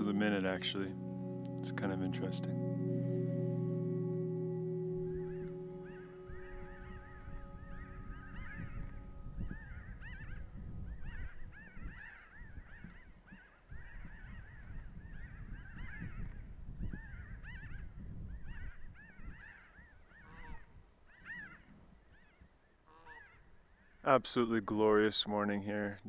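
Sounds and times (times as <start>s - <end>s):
flock of birds calling: 3.9s - 16.4s.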